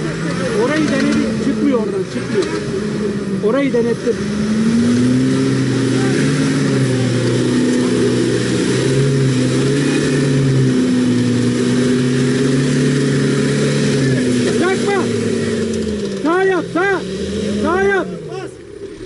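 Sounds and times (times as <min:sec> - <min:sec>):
truck engine pulling under load: 0:00.0 - 0:19.0.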